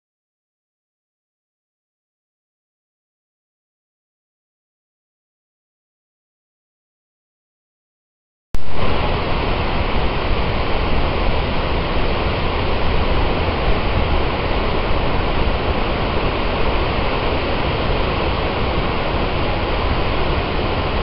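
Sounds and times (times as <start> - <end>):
waterfall rushing: 8.6 - 21.0.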